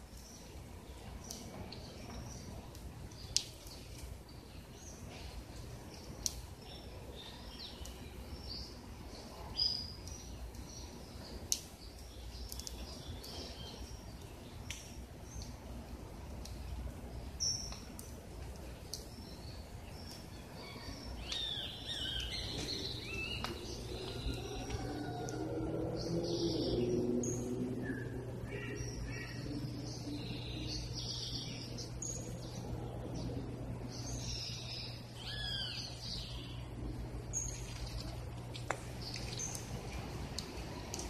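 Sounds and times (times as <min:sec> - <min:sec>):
low steady rumble: 0:00.0 - 0:41.0
birds chirping: 0:17.0 - 0:41.0.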